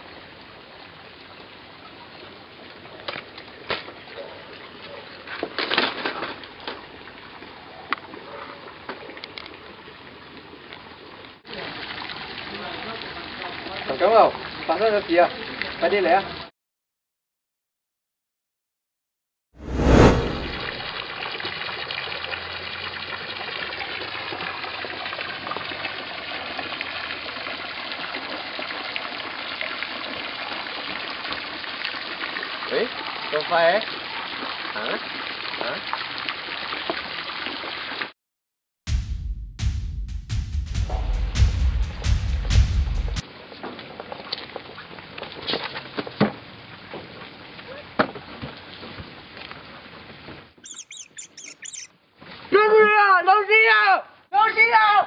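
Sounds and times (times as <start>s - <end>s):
fountain water splashing into pool: 0.0s - 16.5s, 20.8s - 38.1s, 43.2s - 49.9s
loud thud: 19.6s - 20.8s, 38.9s - 43.2s.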